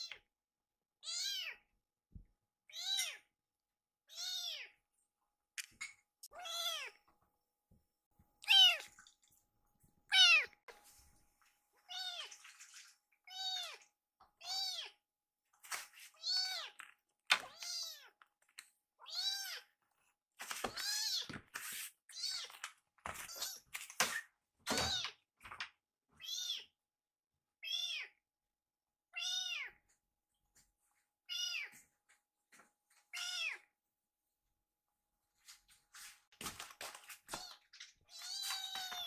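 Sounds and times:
kitten meowing: 8.4 - 8.9, 10.1 - 10.6.

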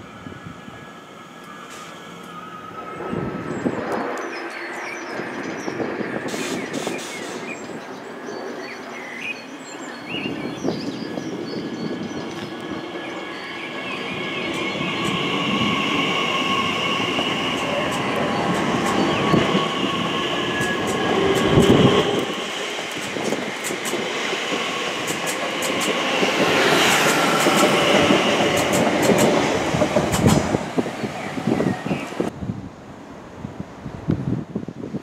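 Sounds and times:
electric train whine: 0.0 - 32.4
wheel and rail noise: 10.7 - 32.4
wheels clicking over rail joints: 25.0 - 30.6.

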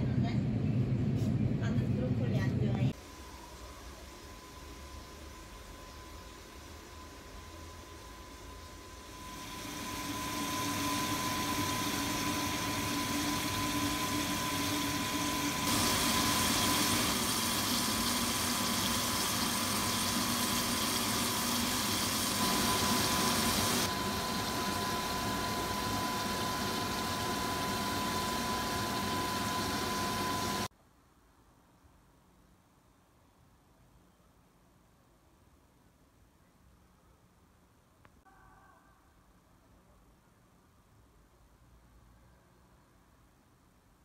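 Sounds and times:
high even whine: 2.6 - 30.7
kitchen appliance hum: 3.0 - 30.7.

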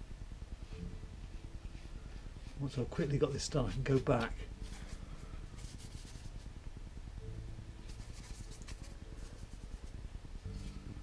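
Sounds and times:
low steady hum: 0.0 - 11.0
paintbrush scrubbing paper: 1.8 - 6.5, 7.9 - 10.0.

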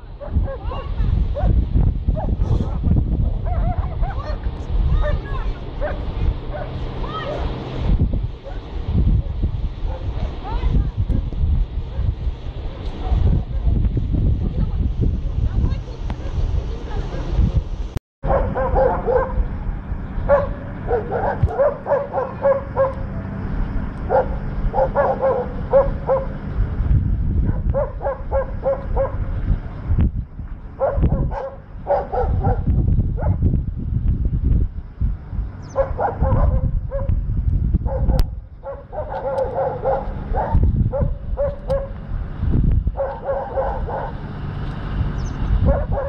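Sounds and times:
steady low rumble: 0.0 - 46.0
dogs barking: 0.1 - 4.4, 5.8 - 7.5, 8.4 - 10.4, 18.2 - 19.5, 20.2 - 23.1, 24.1 - 26.4, 27.5 - 29.3, 30.8 - 33.4, 35.6 - 37.2, 37.8 - 42.0, 42.9 - 44.2, 45.6 - 46.0.

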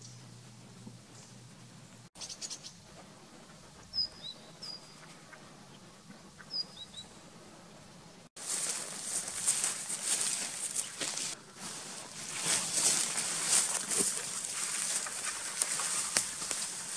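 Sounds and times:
songbird chirping: 2.2 - 7.3, 8.5 - 11.4
crackly rustle: 8.4 - 16.9.

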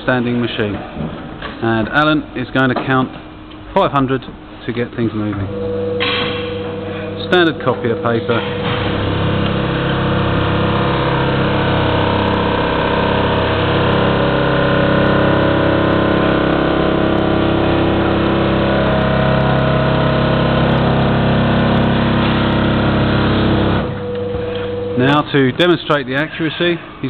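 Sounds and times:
paper counting machine running: 6.0 - 26.0.

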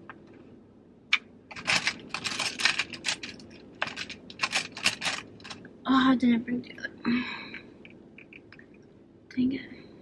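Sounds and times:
brushes and plastic cases clattering: 1.5 - 5.6.

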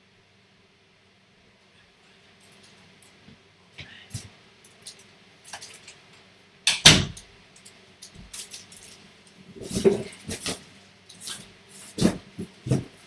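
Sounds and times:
cardboard boxes knocking and scraping: 9.6 - 10.6, 11.9 - 13.0.

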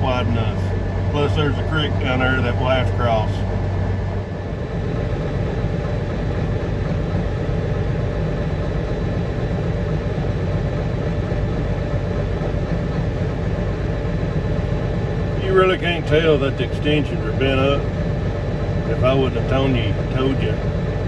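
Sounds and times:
tractor engine drone: 0.0 - 21.0.

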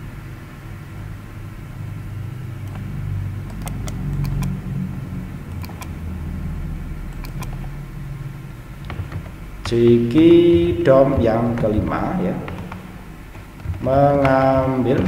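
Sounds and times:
computer mouse clicks: 2.6 - 2.9, 3.5 - 4.6, 5.5 - 6.0, 7.1 - 7.7.

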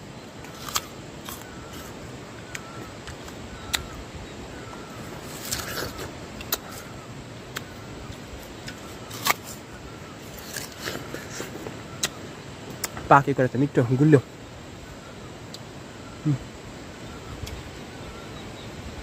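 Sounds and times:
outdoor background noise: 0.0 - 19.0
biting and chewing crisp pear: 0.4 - 4.0, 5.2 - 9.6, 10.3 - 13.0.

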